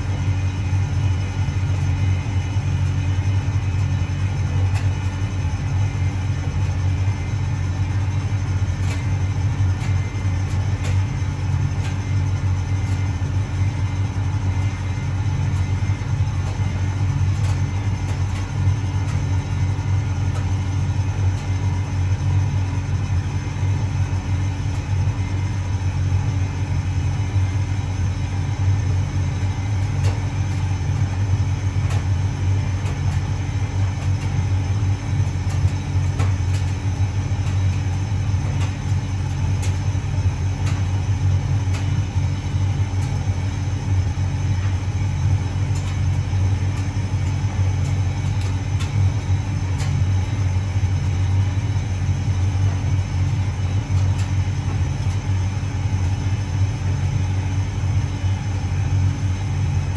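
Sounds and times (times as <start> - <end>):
tumble dryer motor and drum rumble: 0.0 - 59.9.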